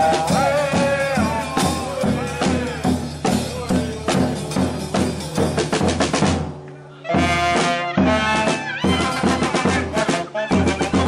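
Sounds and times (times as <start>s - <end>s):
saxophones and brass playing: 0.0s - 4.5s, 7.0s - 11.0s
drums and cymbal beating: 0.0s - 11.0s.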